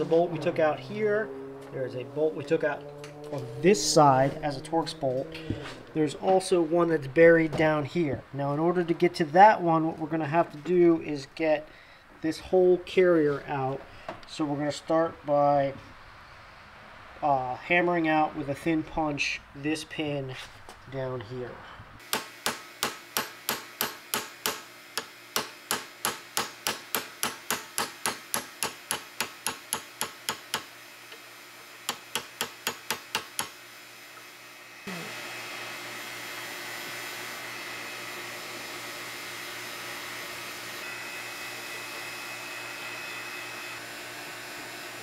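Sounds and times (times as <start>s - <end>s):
steady airy hum: 3.5s - 12.8s
hammer tapping steel punch: 22.1s - 30.7s, 31.9s - 33.6s.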